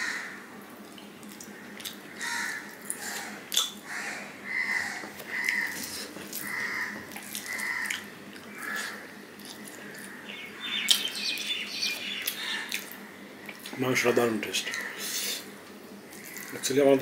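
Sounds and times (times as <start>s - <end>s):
chewing with wet mouth clicks: 0.8s - 2.0s, 7.1s - 10.1s, 12.2s - 13.8s
bird chirping: 9.6s - 12.9s.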